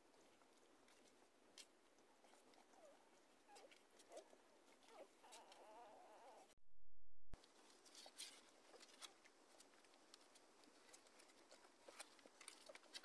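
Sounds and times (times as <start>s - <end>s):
puppy whining: 2.2s - 6.6s
puppies squeaking: 4.9s - 6.5s.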